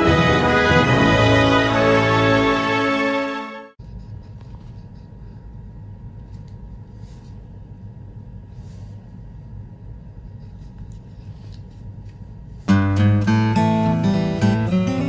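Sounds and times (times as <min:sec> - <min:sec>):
low room rumble: 0:03.8 - 0:13.2.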